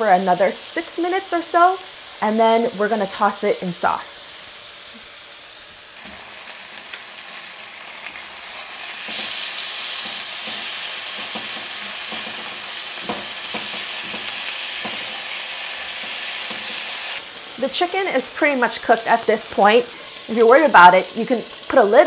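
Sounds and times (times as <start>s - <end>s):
chicken sizzling in a skillet: 0.0s - 22.0s
tongs knocking against pan: 10.0s - 15.2s.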